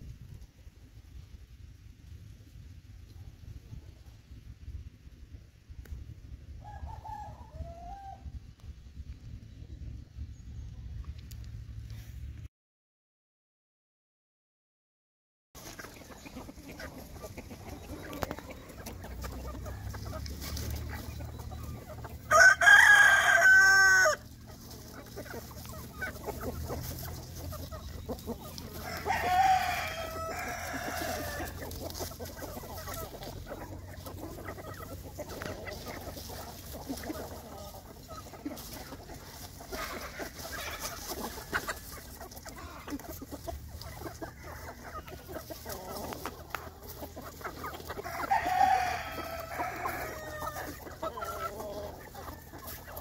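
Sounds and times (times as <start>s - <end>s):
chickens clucking: 0.0s - 12.1s, 15.6s - 53.0s
rooster crowing: 6.6s - 8.3s, 22.2s - 24.3s, 28.7s - 31.7s, 48.0s - 50.8s.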